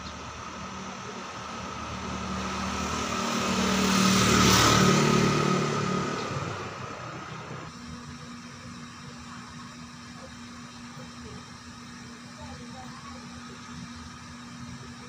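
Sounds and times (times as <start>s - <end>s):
vehicle passing: 0.0s - 7.7s.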